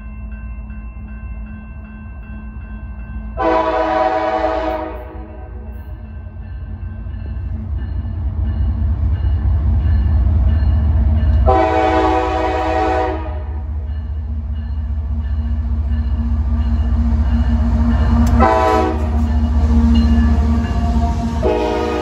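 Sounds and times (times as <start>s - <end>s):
diesel locomotives rumbling: 0.0s - 22.0s
train air horn blasts: 3.4s - 5.7s, 11.4s - 13.7s, 18.3s - 19.2s, 21.4s - 22.0s.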